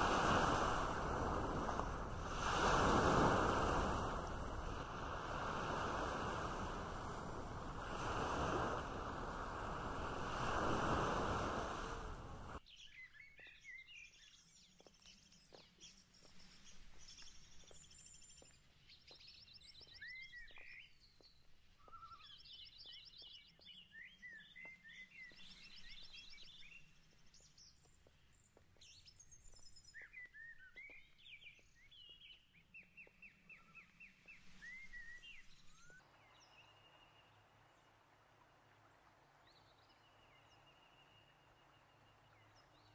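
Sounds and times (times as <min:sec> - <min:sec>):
rushing wind or surf: 0:00.0 - 0:12.6
birds singing: 0:00.0 - 0:37.4.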